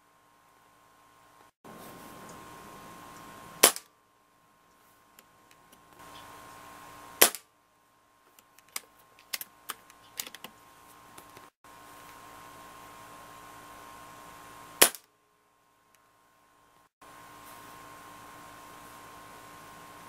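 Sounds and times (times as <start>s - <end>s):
air rifle shot crack: 3.6s - 3.9s, 7.2s - 7.5s, 14.8s - 15.1s
small clicks and knocks: 8.2s - 11.5s.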